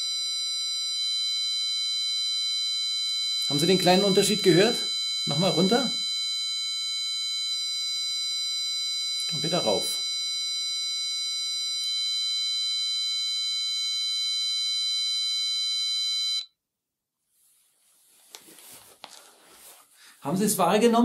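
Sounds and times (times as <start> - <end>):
electronic reference tone: 0.0 - 16.5
faint rustling: 17.2 - 20.2.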